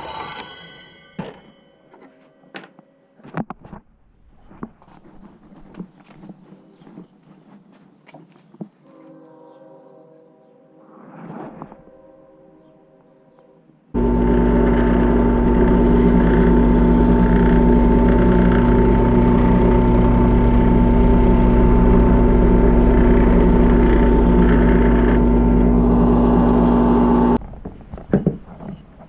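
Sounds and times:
drill press motor running: 14.0 - 27.4.

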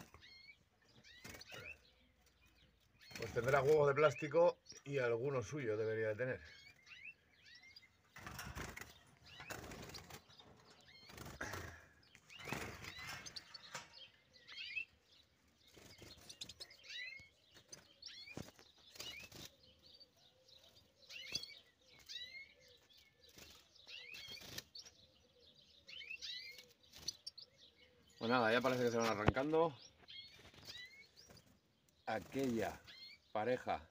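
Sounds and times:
finches chirping: 0.0 - 33.9.

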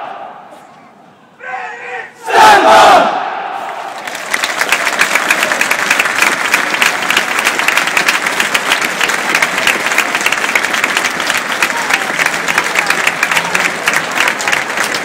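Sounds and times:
crowd applauding: 3.8 - 15.0.

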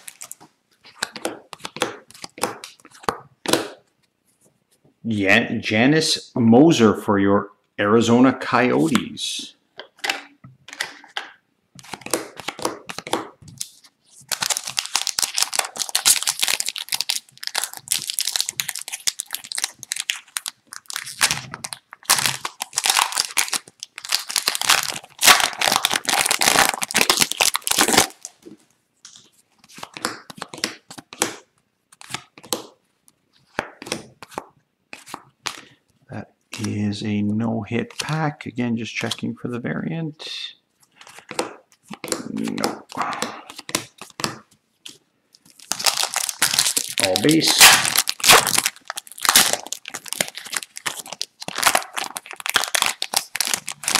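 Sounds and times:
plastic wrapper tearing and crinkling: 0.0 - 3.1, 11.8 - 28.5, 41.0 - 53.9
cards being shuffled: 0.0 - 4.5, 9.8 - 32.8, 33.4 - 35.6, 40.8 - 53.9.

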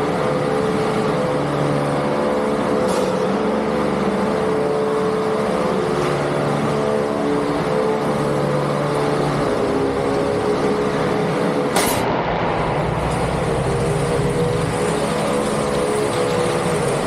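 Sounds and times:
electric motors whining: 0.0 - 11.8, 12.8 - 17.0
loud arena noise: 0.0 - 17.0
sharp metallic impact: 11.7 - 15.4.

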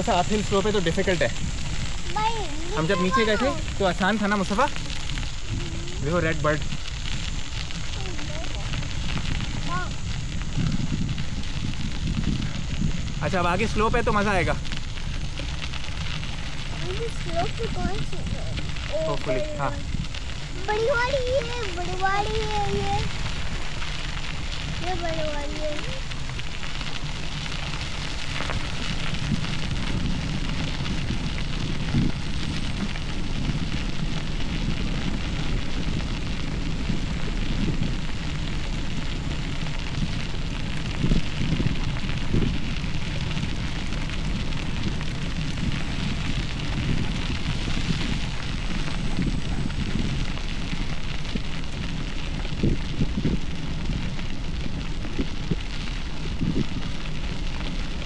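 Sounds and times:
bicycle tyres on gravel: 0.0 - 58.0
low rumble: 0.0 - 58.0
bicycle bumps: 19.8 - 55.6.

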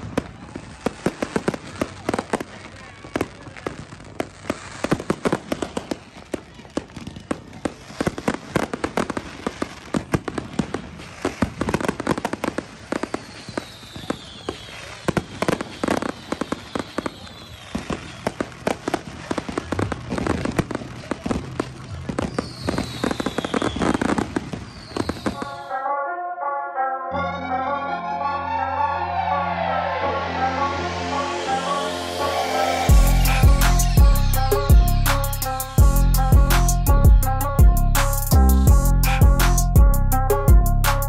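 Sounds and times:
fireworks crackling and banging: 0.0 - 25.8
fireworks whistling: 4.0 - 21.3, 22.1 - 25.8, 28.0 - 39.7
music: 25.4 - 41.0.

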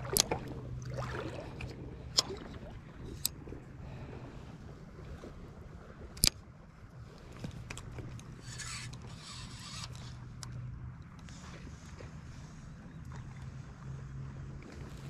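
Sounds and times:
fishing reel whirring: 8.1 - 10.6.

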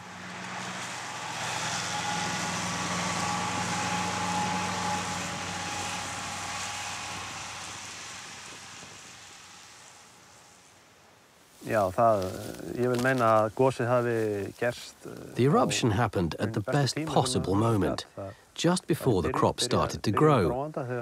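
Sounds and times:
tractor engine running: 0.0 - 10.6
mower whirring hiss: 0.0 - 14.8.

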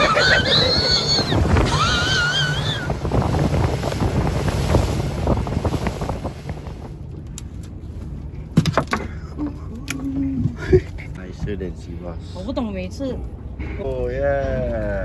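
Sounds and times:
wind buffeting microphone: 0.0 - 8.6
low rumble: 0.0 - 15.0
sea waves: 0.0 - 15.0.

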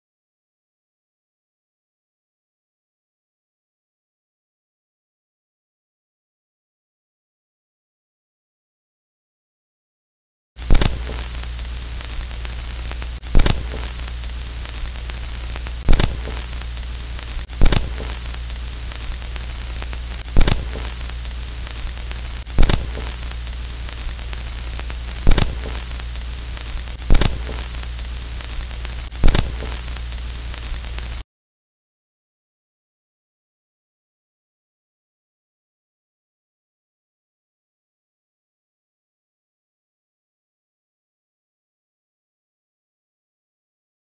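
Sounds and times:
low hum: 10.6 - 31.2
sharp pops: 10.6 - 31.2
static hiss: 10.6 - 31.2.

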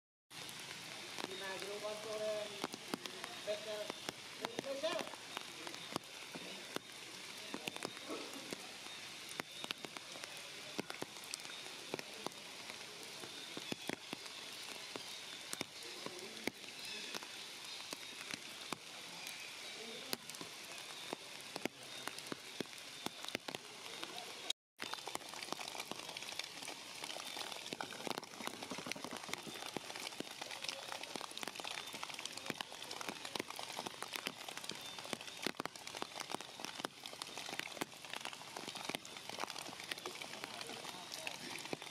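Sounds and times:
heavy rain on leaves: 0.3 - 41.9.

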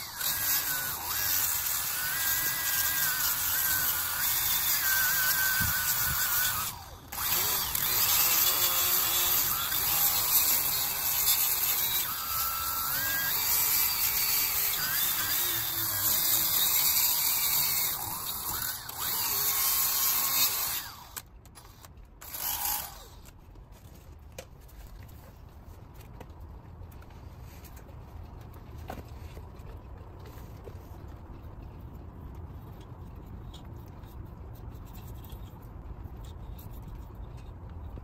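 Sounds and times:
rotary tool grinding rust: 0.0 - 24.1.

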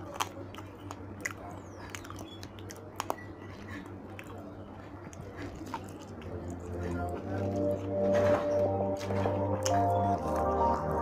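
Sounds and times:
soft mouth clicks and smacks: 0.0 - 8.4
low steady hum: 0.0 - 11.0
person chewing and biting food: 0.0 - 11.0.

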